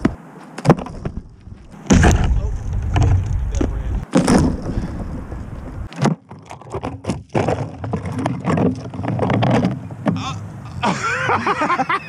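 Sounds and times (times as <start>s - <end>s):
wind buffeting microphone: 1.0s - 5.9s.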